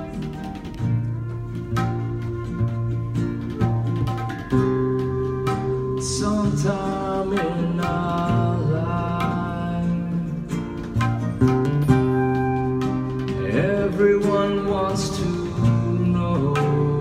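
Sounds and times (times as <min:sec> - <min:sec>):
strummed string accompaniment: 0:00.0 - 0:17.0
person singing: 0:06.0 - 0:10.7, 0:13.3 - 0:17.0.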